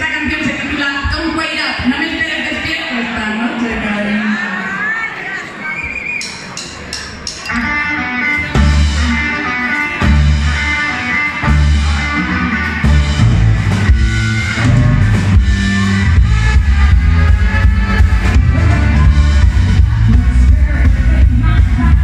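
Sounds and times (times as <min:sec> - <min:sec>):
drum kit: 0:06.2 - 0:22.0
bass guitar: 0:07.5 - 0:22.0
electric guitar: 0:07.5 - 0:22.0.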